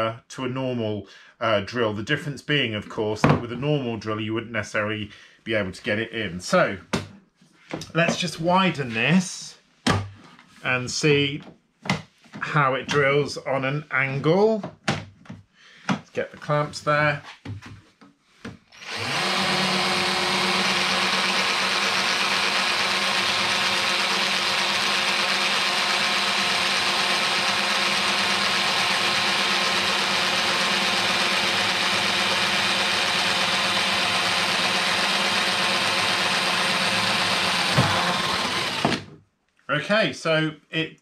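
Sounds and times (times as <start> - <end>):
cordless drill boring through wood: 18.7 - 39.1.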